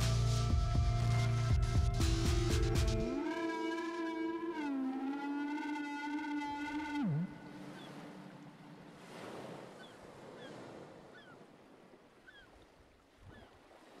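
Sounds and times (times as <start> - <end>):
high downward sliding chirps: 3.0 - 8.5.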